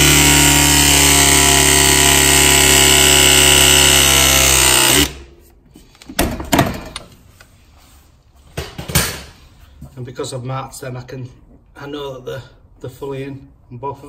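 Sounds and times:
press tool motor running: 0.0s - 5.2s.

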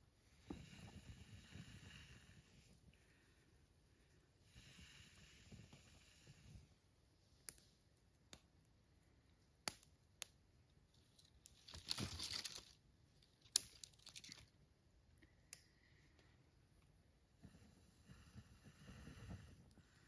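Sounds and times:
twigs rustling and crunching: 10.9s - 14.6s.

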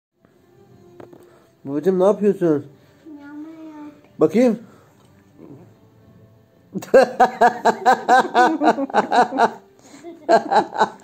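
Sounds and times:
person laughing: 6.8s - 11.0s.

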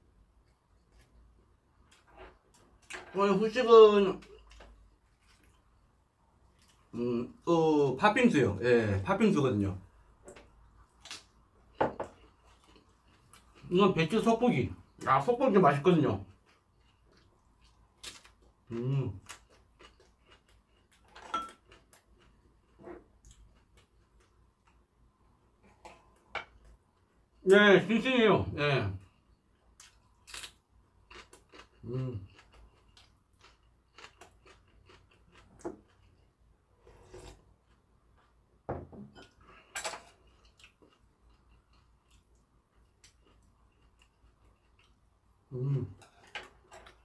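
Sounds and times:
person chewing: 4.2s - 5.8s, 10.8s - 13.7s, 16.3s - 24.8s, 29.5s - 38.4s, 39.2s - 47.0s
ceramic bowl set on wooden table: 11.8s - 12.2s, 21.0s - 21.7s, 36.8s - 37.4s, 38.7s - 40.2s, 45.8s - 47.0s.

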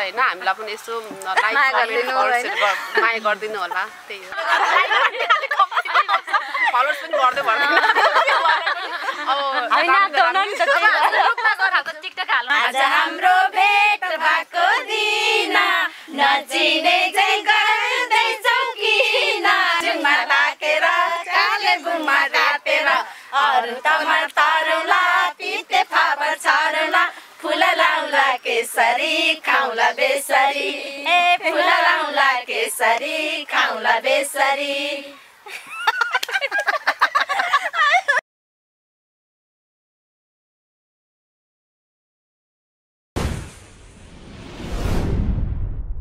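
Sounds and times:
woman singing unaccompanied: 9.2s - 35.2s.

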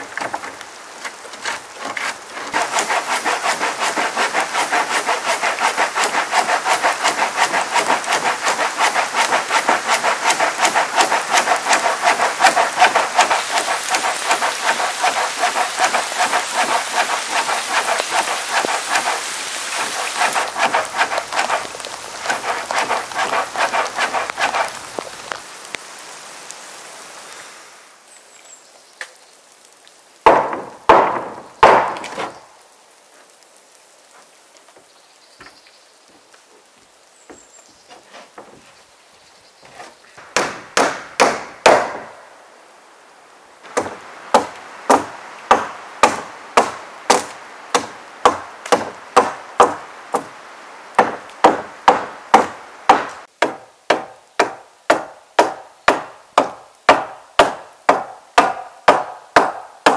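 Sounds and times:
rain pattering: 0.0s - 37.3s, 41.4s - 53.4s
hammer driving nails into wood: 40.3s - 42.1s.

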